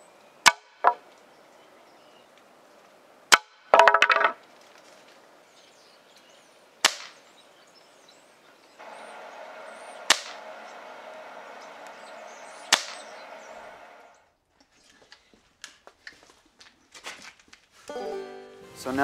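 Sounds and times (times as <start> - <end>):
air rifle firing cracks: 6.8 - 7.2, 10.0 - 13.5.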